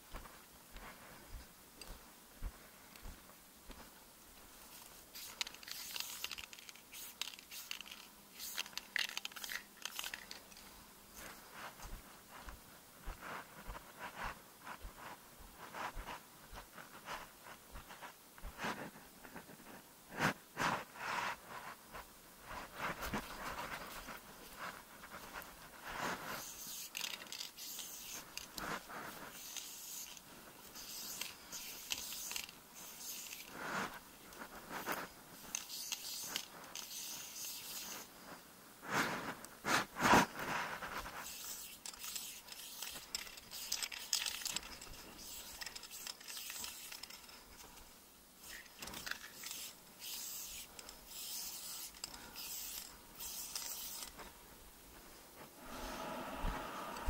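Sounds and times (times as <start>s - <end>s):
footsteps on gravel and grass: 0.0s - 8.2s, 8.8s - 19.0s.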